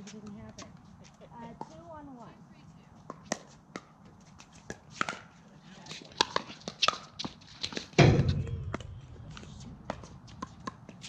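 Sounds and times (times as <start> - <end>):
loud low thump: 8.0 - 9.0.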